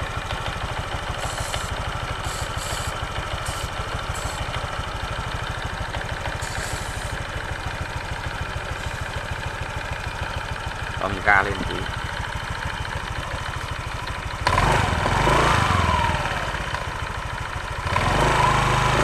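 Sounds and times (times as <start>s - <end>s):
scooter engine idling: 0.0s - 19.0s
aerosol spray hissing: 1.2s - 4.6s, 6.4s - 7.2s.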